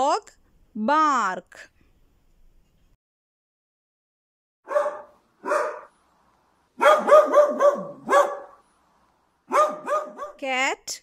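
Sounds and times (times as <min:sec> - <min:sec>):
dog barking: 0:04.7 - 0:05.9, 0:06.8 - 0:08.6, 0:09.5 - 0:10.4.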